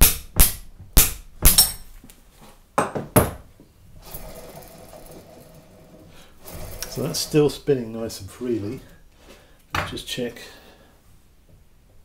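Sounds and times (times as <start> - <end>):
wheel hub spinning whirr: 4.0 - 7.3.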